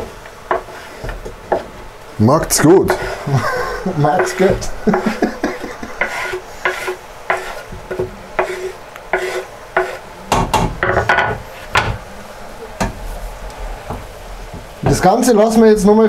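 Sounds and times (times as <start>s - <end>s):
spoon scraping vegetables in pot: 0.5s - 1.8s, 4.2s - 10.0s.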